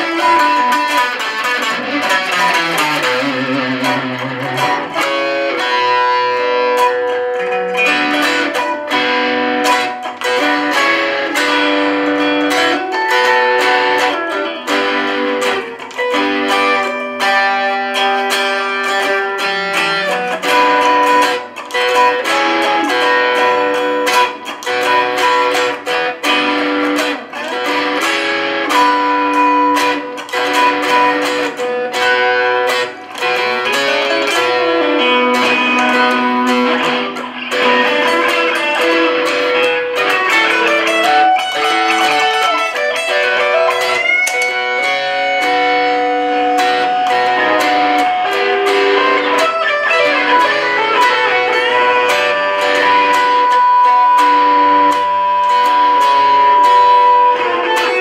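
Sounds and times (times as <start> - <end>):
electric guitars playing blues: 0.0 - 58.0.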